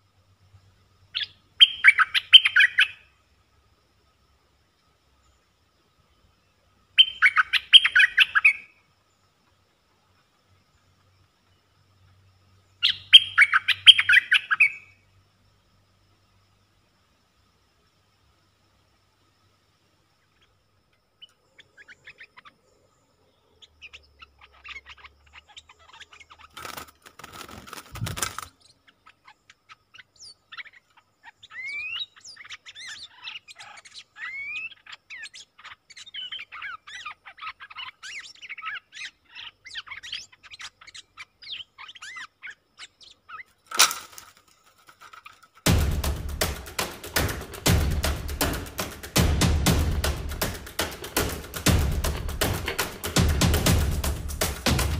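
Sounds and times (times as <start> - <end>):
birds chirping and whistling: 1.2 - 3.0, 7.0 - 8.7, 12.8 - 14.9
thump: 45.7 - 54.9.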